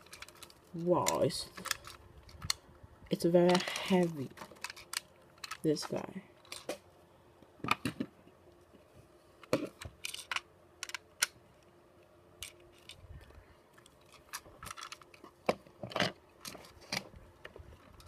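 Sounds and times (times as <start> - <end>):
plastic toy train cars clicking: 0.0 - 2.6, 3.4 - 5.7, 9.7 - 11.3, 13.8 - 15.3.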